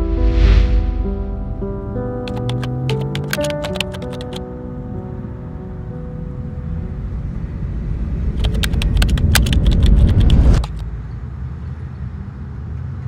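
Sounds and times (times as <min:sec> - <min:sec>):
deep rumble: 0:00.0 - 0:02.2, 0:04.7 - 0:11.3
sharp crackles and clicks: 0:02.3 - 0:04.4, 0:08.3 - 0:10.8.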